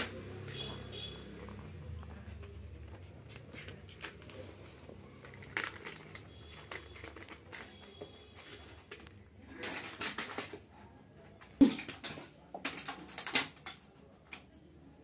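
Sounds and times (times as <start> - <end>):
puppy playing with plastic toy: 2.8 - 14.5.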